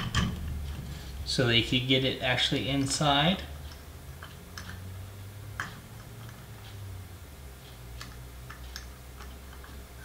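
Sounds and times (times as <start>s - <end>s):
clicks of metal engine parts: 0.0s - 0.4s
low steady hum: 0.0s - 10.0s.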